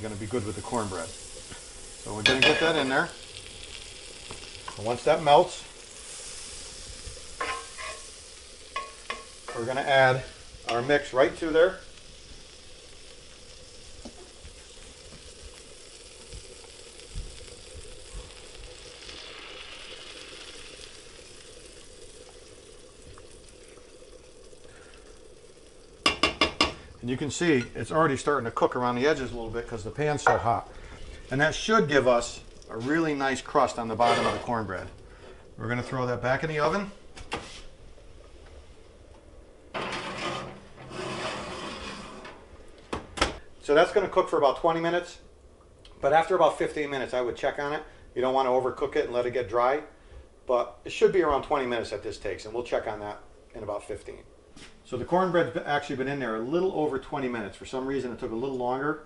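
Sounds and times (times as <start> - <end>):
butter sizzling in a skillet: 0.0 - 38.8
batter pouring: 0.0 - 44.8
skillet scraping on oven rack: 33.9 - 34.5, 39.7 - 42.5.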